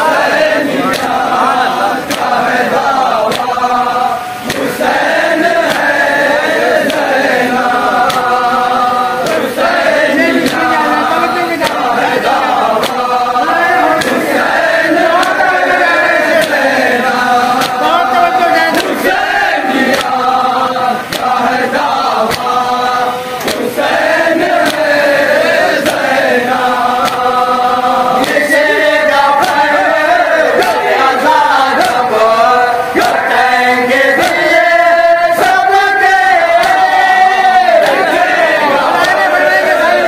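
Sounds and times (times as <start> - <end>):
lead reciter chanting: 0.0 - 40.0
men chanting in unison: 0.0 - 40.0
chest-beating slaps: 0.1 - 8.6, 9.2 - 20.4, 21.0 - 27.4, 28.1 - 40.0.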